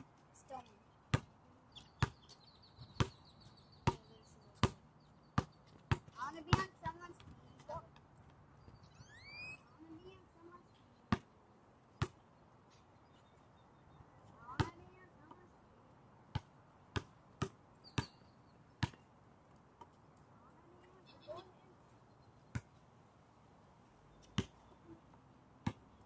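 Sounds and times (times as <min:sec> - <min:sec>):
basketball bouncing on hard court: 0:03.8 - 0:04.8, 0:05.4 - 0:07.3, 0:14.5 - 0:14.9, 0:16.3 - 0:18.2, 0:18.8 - 0:19.0, 0:24.4 - 0:24.6, 0:25.6 - 0:25.8
short high rising squeak: 0:09.0 - 0:09.6.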